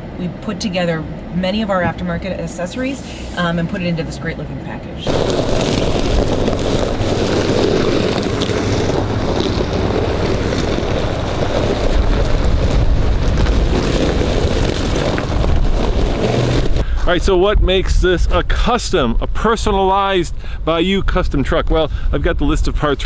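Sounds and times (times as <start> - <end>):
trucks driving on gravel: 5.1 - 23.0
wind on microphone: 5.1 - 23.0.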